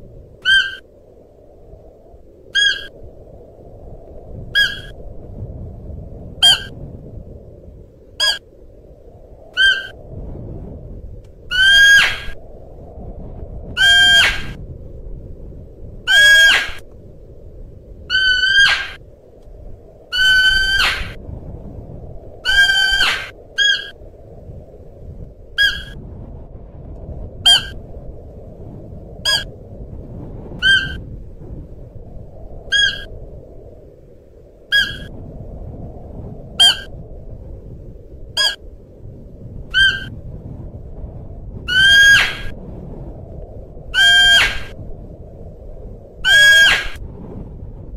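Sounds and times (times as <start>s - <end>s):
deer calling: 0.4s - 0.8s.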